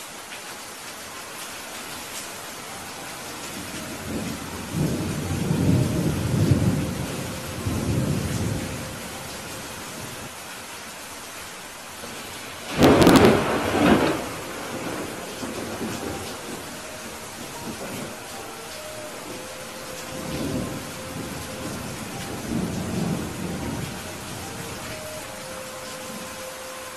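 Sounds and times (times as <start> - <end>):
rain on window glass: 0.0 - 26.9
low thunder rumble: 3.6 - 10.2, 12.0 - 24.9
sharp thunderclap: 12.7 - 16.3.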